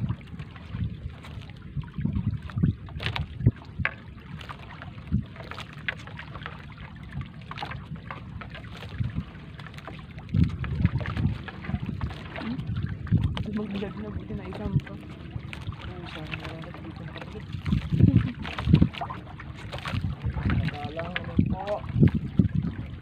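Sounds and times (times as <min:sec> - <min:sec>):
steady low rumble: 0:00.0 - 0:23.0
wet net rustling and splashing: 0:04.2 - 0:21.3.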